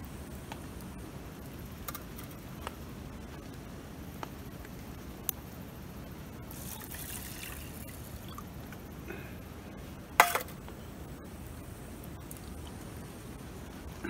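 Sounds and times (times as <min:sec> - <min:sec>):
water trickling into metal pot: 0:06.5 - 0:08.4.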